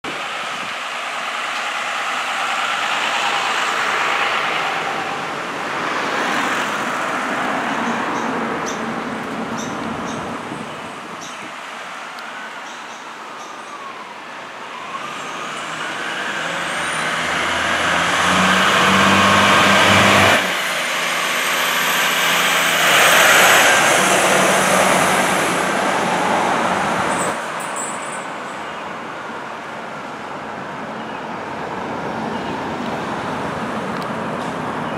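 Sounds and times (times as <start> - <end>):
fire engine diesel passing: 0.0 - 12.6, 13.2 - 29.1
faint siren: 12.2 - 18.0, 25.9 - 27.1.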